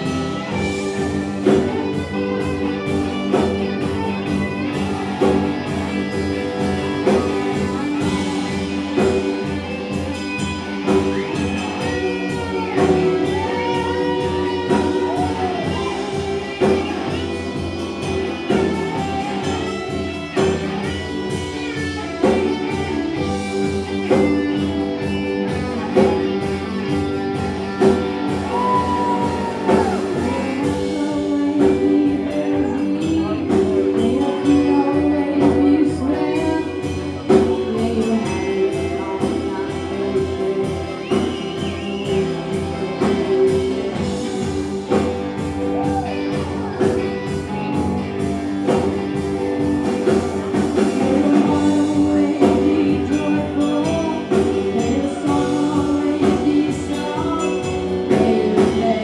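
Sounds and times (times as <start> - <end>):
drum kit: 0.0 - 59.0
electric guitar: 0.0 - 59.0
woman singing into microphone: 28.4 - 42.3, 50.8 - 59.0.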